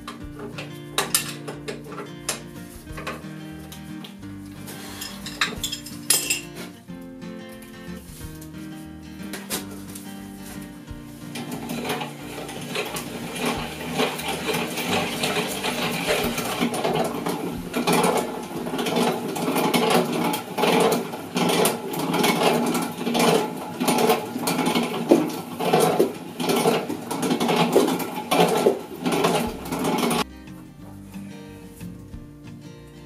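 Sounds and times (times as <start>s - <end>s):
treadle lathe clattering rhythmically: 11.3s - 30.3s.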